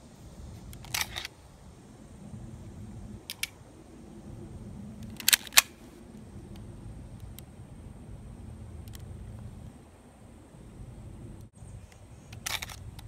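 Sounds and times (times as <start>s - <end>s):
pistol mechanism clicks: 0.7s - 1.3s, 3.3s - 3.6s, 5.0s - 5.8s, 12.3s - 13.0s.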